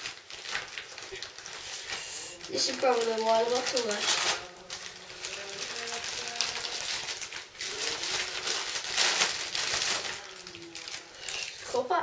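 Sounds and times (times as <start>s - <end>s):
paper tearing: 0.0s - 11.8s
wrapping paper rustling and crinkling: 0.0s - 12.0s
faint murmur of voices: 1.6s - 12.0s.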